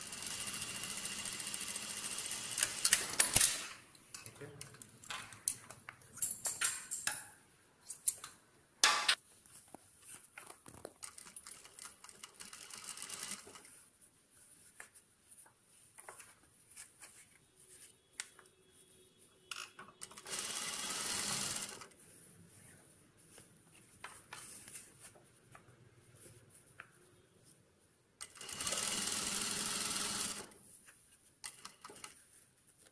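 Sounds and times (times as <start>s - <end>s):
sewing machine stitching: 0.0s - 3.7s, 11.0s - 13.7s, 19.5s - 21.9s, 28.2s - 30.6s, 31.4s - 32.2s.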